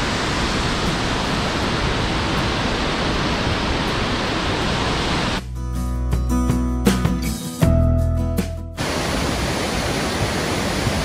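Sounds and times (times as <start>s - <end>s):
waterfall rushing: 0.0s - 5.4s, 8.8s - 11.0s
background music: 5.4s - 8.8s.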